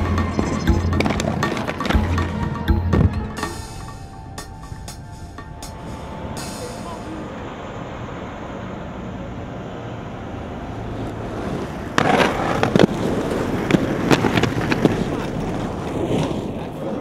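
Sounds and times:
skates grinding on concrete ledge: 0:00.0 - 0:02.5, 0:11.2 - 0:17.0
inline skates rolling on pavement: 0:00.0 - 0:02.6, 0:10.0 - 0:17.0
skates landing with a clack: 0:11.9 - 0:16.6.

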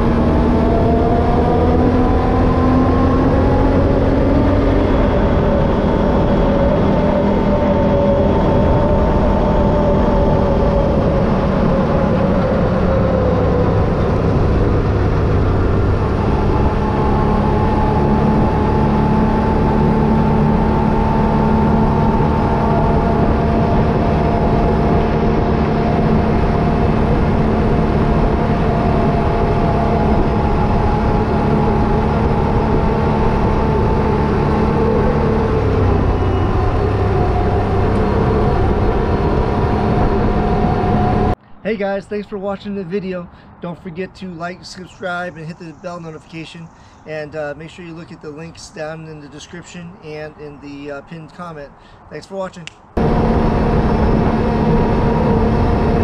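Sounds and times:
atv engine running: 0:00.0 - 0:41.4, 0:53.0 - 0:56.0.

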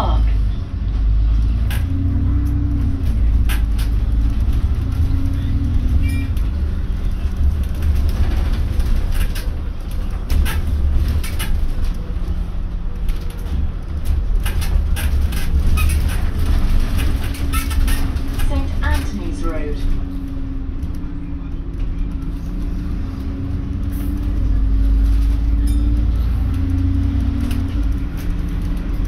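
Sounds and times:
bus engine and road rumble: 0:00.0 - 0:29.0.

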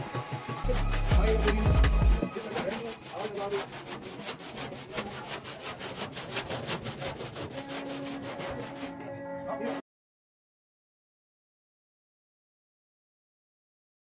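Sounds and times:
back-and-forth rubbing strokes: 0:00.0 - 0:09.8.

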